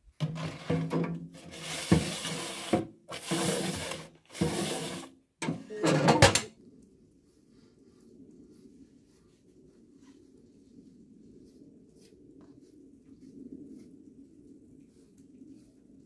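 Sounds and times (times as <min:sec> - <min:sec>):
metal tray scraping oven floor: 0:00.2 - 0:06.5.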